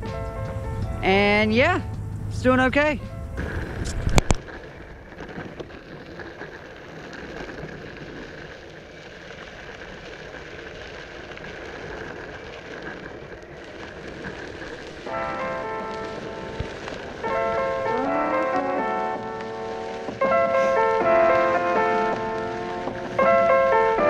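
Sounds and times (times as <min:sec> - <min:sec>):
background music: 0:00.0 - 0:04.0
wheels rolling over dirt: 0:00.0 - 0:24.0.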